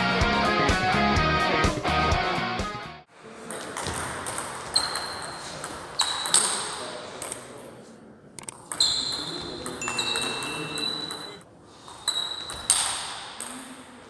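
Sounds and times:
table tennis ball hits: 3.4s - 7.6s, 8.6s - 14.0s.

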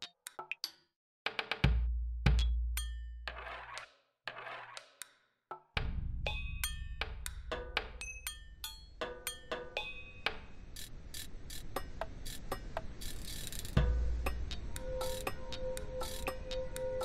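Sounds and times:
hiss: 10.8s - 16.4s
low hum: 10.9s - 17.0s
held mid tone: 13.8s - 17.0s.

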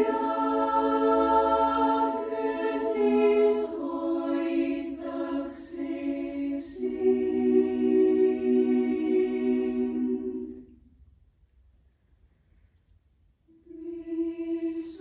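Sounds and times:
girls' choir singing a cappella: 0.0s - 10.7s, 13.7s - 15.0s.

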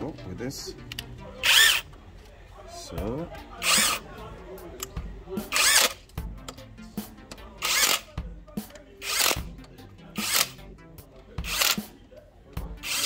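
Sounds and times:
power driver spinning bolts: 1.4s - 1.8s, 3.6s - 4.0s, 4.8s - 6.7s, 7.4s - 8.1s, 8.7s - 10.6s, 11.4s - 11.9s, 12.8s - 13.0s.

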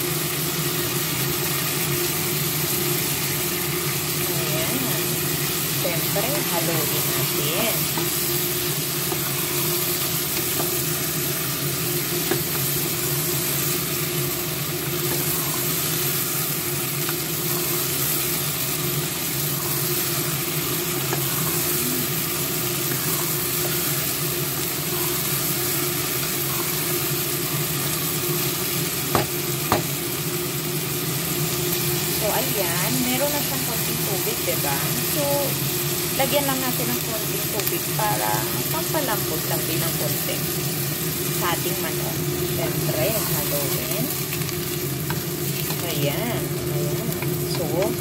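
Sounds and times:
chicken sizzling in a pot: 0.0s - 48.0s.

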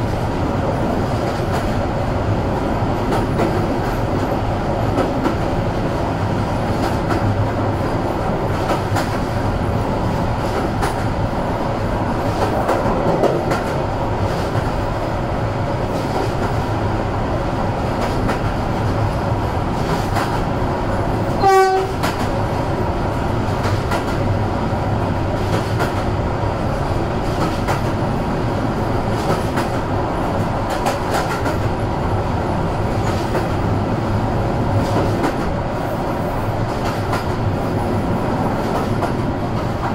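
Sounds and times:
train wheels rumbling on rails: 0.0s - 39.9s
train horn blast: 21.4s - 22.1s.

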